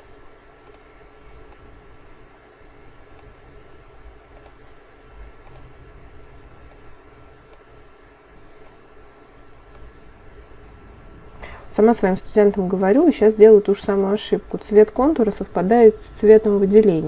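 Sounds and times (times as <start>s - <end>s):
computer mouse clicks: 0.0s - 0.9s, 1.5s - 1.7s, 4.3s - 4.6s, 5.4s - 5.7s, 6.6s - 6.9s, 7.5s - 7.7s, 8.6s - 8.8s, 9.7s - 9.9s, 14.5s - 14.9s, 16.3s - 16.6s
faint electrical hum: 0.0s - 17.0s.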